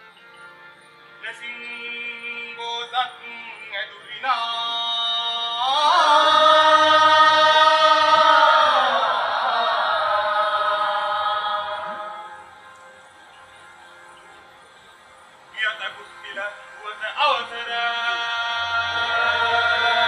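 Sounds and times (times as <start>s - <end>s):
man chanting a long note: 15.5s - 20.0s.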